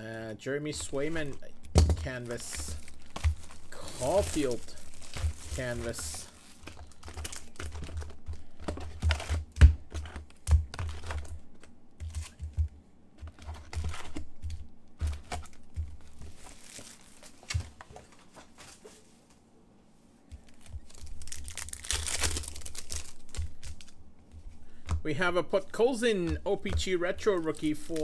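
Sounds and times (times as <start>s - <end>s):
foil packs crinkling: 0.8s - 10.0s, 15.0s - 19.0s, 20.4s - 24.0s, 25.6s - 28.0s
pack tearing open: 2.3s - 8.2s, 20.5s - 23.9s.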